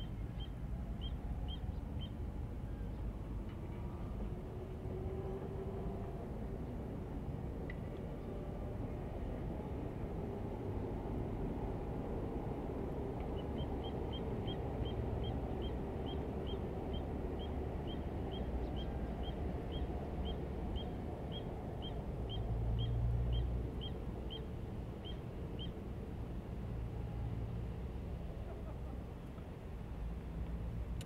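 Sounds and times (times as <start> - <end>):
low outdoor rumble: 0.0 - 31.0.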